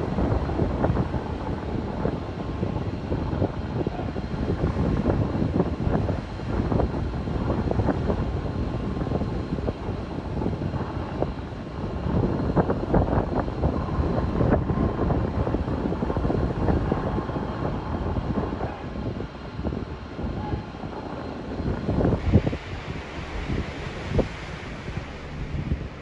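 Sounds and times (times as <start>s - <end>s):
aircraft engine drone: 0.0s - 26.0s.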